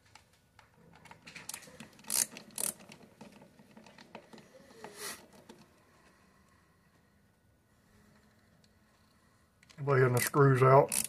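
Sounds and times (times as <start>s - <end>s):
ratcheting screwdriver rasps: 1.4s - 3.4s, 10.2s - 11.0s.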